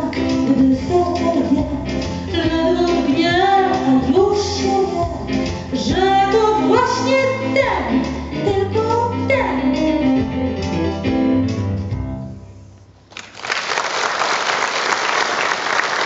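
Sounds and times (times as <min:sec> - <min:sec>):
song with backing music: 0:00.0 - 0:12.8
audience applause: 0:13.1 - 0:16.0.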